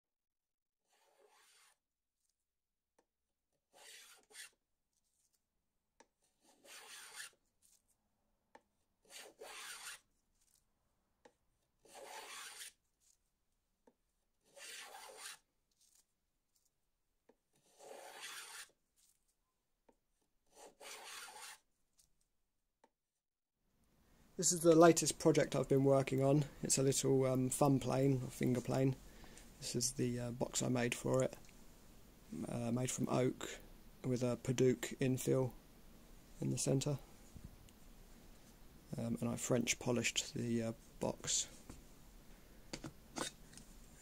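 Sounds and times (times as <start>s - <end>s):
hand tool rasping strokes: 6.4s - 7.4s, 9.1s - 10.0s, 11.9s - 12.7s, 14.5s - 15.4s, 17.6s - 18.7s, 20.6s - 21.6s.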